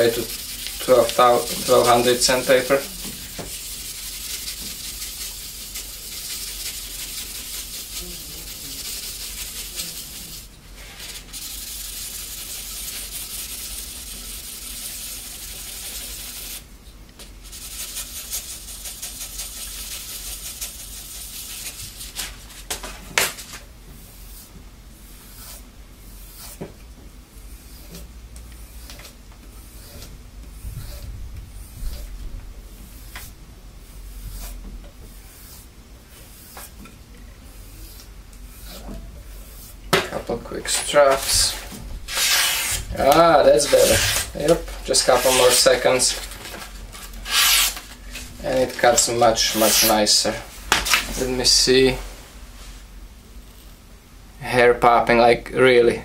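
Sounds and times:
knife scraping on sandpaper: 0:00.0 - 0:16.6, 0:17.4 - 0:26.6, 0:27.5 - 0:32.2, 0:34.0 - 0:36.8, 0:37.5 - 0:51.7.

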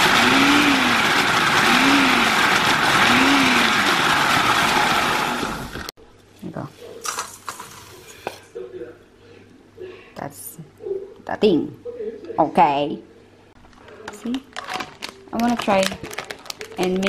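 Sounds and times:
food processor grinding: 0:00.0 - 0:05.9.

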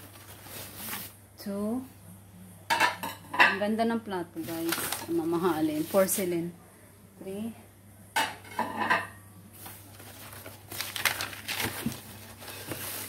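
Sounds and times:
plastic wrap rustling: 0:00.0 - 0:01.2, 0:04.3 - 0:06.5, 0:09.5 - 0:13.0
porcelain plates clinking: 0:08.2 - 0:09.2.

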